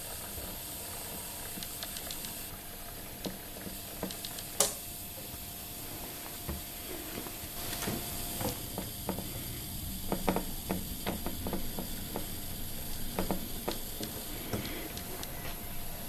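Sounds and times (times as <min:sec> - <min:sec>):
faint motor hum: 0:00.0 - 0:16.0
light clicks and crackles: 0:01.5 - 0:02.4.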